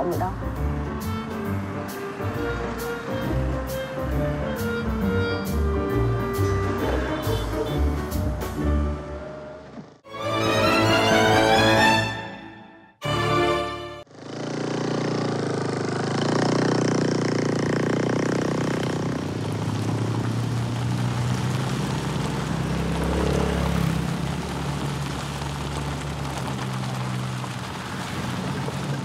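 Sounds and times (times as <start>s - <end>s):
car engine hum: 0.0s - 10.1s, 14.0s - 29.0s
tyre and road noise: 0.0s - 12.1s, 13.0s - 29.0s.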